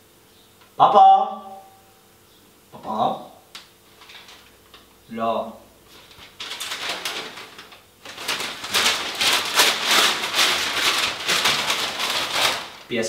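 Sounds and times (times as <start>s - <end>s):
newspaper rustling and crumpling: 3.9s - 4.7s, 5.9s - 13.0s.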